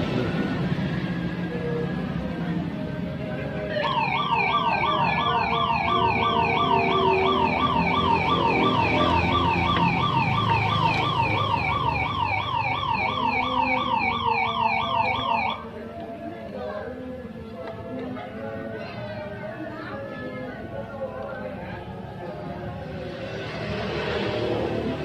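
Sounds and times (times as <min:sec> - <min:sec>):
electronic siren yelping: 0:03.8 - 0:15.7.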